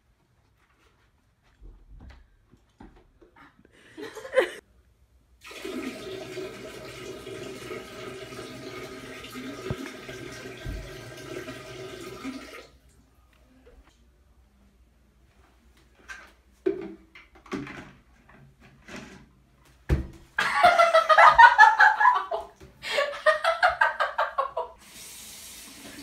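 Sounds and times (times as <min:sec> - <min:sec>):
toilet flushing: 0:05.4 - 0:12.9, 0:24.8 - 0:26.0.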